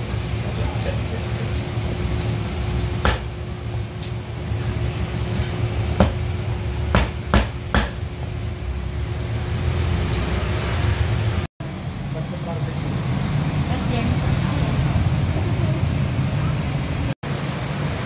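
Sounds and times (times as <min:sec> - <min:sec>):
cleaver chopping on wooden block: 0:03.0 - 0:03.3, 0:06.9 - 0:08.0.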